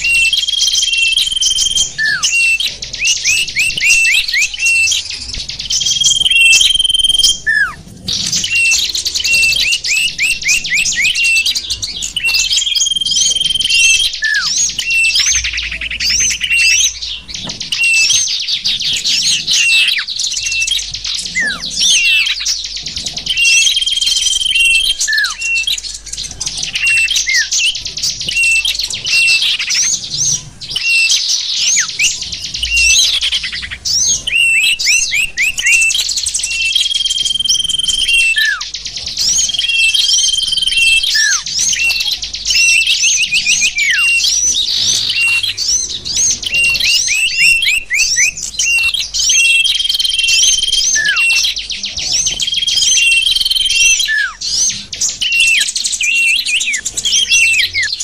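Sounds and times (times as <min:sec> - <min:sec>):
long held bird whistles: 0:00.0 - 0:58.0
songbirds chirping: 0:00.0 - 0:58.0.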